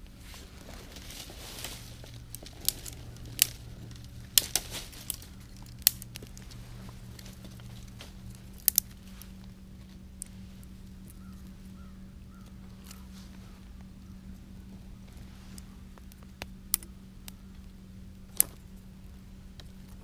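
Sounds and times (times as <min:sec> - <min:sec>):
fire crackling with sharp pops: 0:00.0 - 0:20.0.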